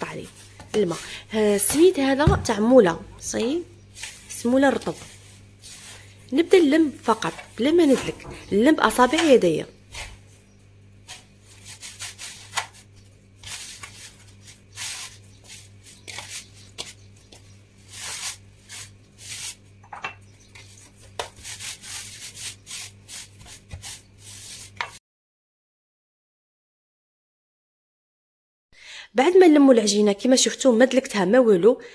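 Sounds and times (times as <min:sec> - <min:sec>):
low steady hum: 0:00.0 - 0:24.8
hands squishing dough in wooden bowl: 0:11.0 - 0:19.6, 0:20.2 - 0:25.0.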